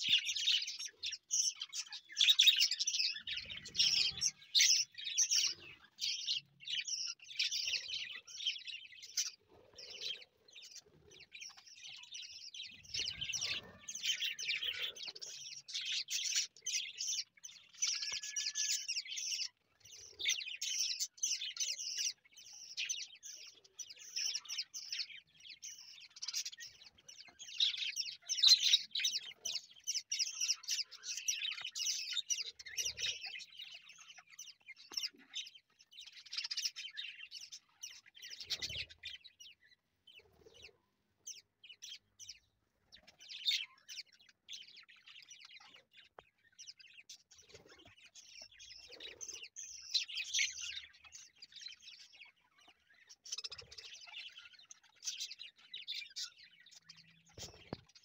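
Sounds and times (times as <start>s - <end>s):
budgerigars chattering: 0.0s - 40.7s.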